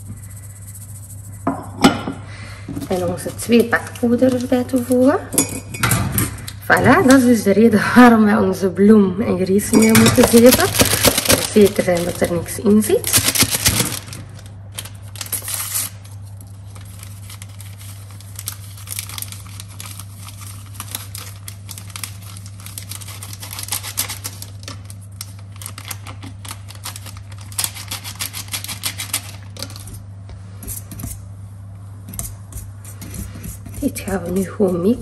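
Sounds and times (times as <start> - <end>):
whisk scraping steel bowl: 0.0 - 1.8, 32.1 - 35.0
low steady hum: 0.0 - 35.0
paper sachets tearing and crinkling: 2.9 - 5.2, 9.8 - 30.0.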